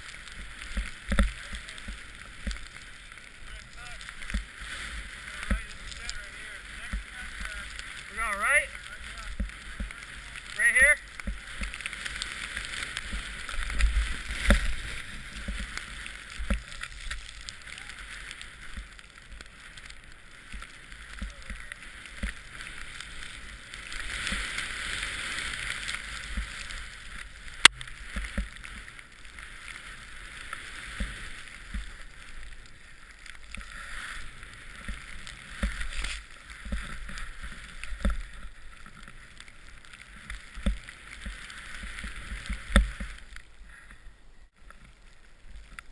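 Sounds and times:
powder snow hissing and spraying: 0:00.0 - 0:43.4.

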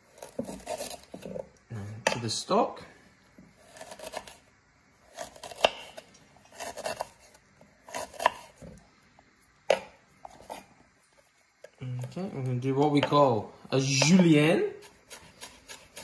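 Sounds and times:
knife slicing on wooden board: 0:00.1 - 0:01.4, 0:03.6 - 0:04.4, 0:05.1 - 0:08.8, 0:14.8 - 0:16.0.

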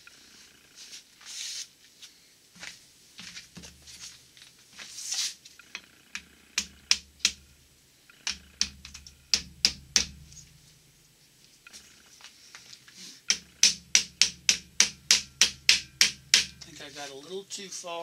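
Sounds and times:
sharp metal clicks and taps: 0:05.6 - 0:07.5, 0:08.1 - 0:10.2, 0:13.2 - 0:16.7.

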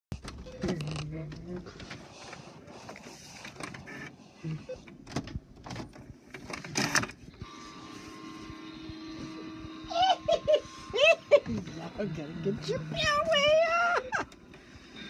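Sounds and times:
scanner motor whine: 0:07.2 - 0:15.0.

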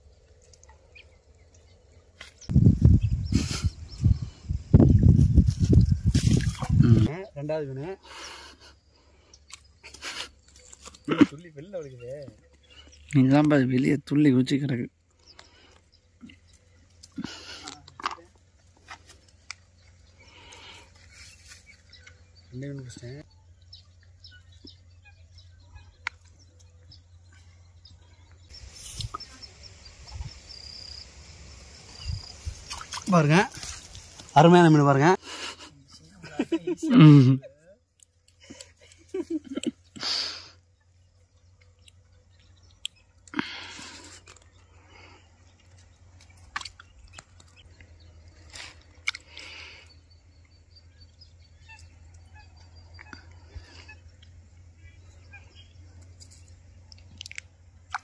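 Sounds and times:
faint birds chirping: 0:00.0 - 0:58.0
dull low thumps: 0:02.5 - 0:07.1
wind rumble on microphone: 0:02.5 - 0:07.1.

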